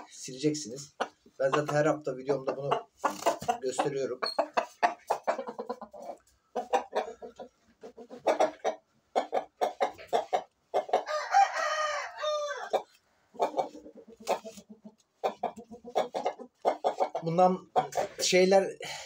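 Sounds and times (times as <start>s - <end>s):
rooster clucking: 0.0s - 18.4s
rooster crowing: 11.0s - 12.8s.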